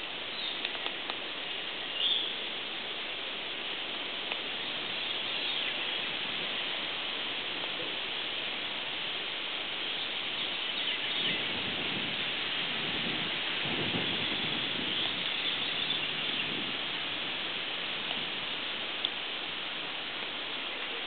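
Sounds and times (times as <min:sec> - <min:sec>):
outdoor background hiss: 0:00.0 - 0:21.0
faint bird chirps: 0:01.9 - 0:02.5.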